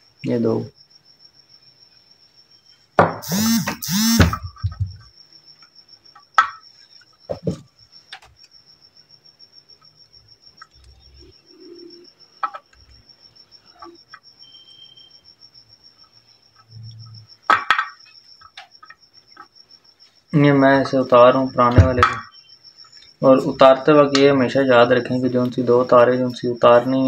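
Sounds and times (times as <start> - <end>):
cricket chirping trill: 0.0 - 27.0
loud two-part call: 3.2 - 4.4.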